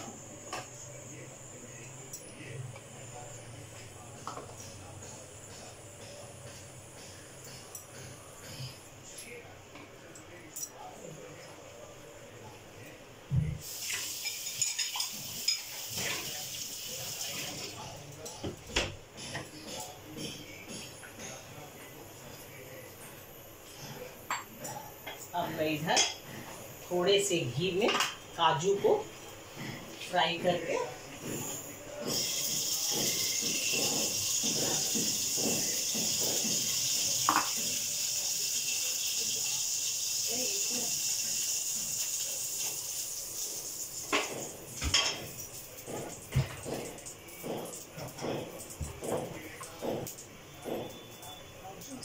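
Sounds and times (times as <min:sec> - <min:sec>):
pressure cooker steam hissing: 0:13.6 - 0:17.7, 0:31.2 - 0:44.5.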